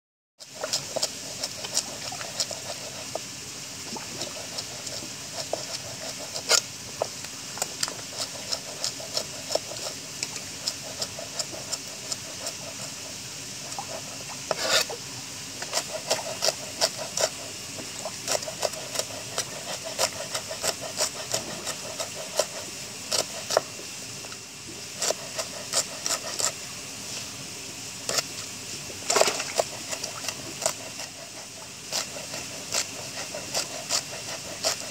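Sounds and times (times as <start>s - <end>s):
fish splashing at water surface: 28.2s - 30.9s.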